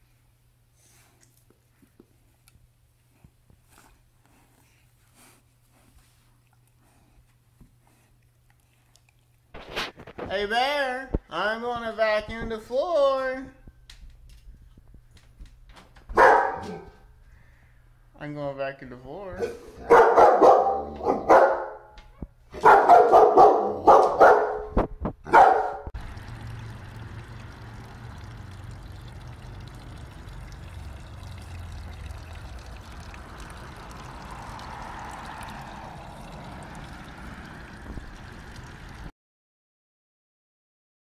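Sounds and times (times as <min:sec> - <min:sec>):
dog barking: 0:16.1 - 0:17.0, 0:19.4 - 0:21.9, 0:22.6 - 0:25.9
fountain water splashing: 0:26.0 - 0:39.1.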